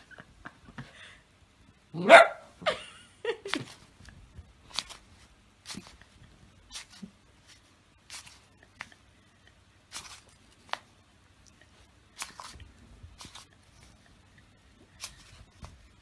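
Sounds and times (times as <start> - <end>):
soft wet smacks and rustles: 3.5 - 16.0.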